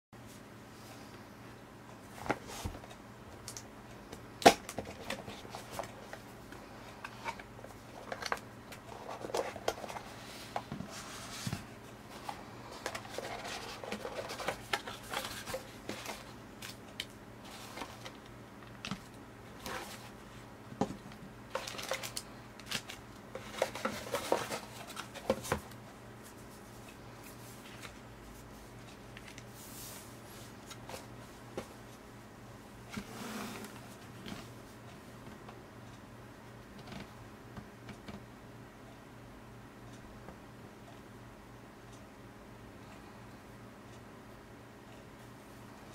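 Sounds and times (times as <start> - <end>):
paper and plastic rustling: 4.7 - 20.2, 20.9 - 28.0
cardboard sliding: 32.9 - 33.9.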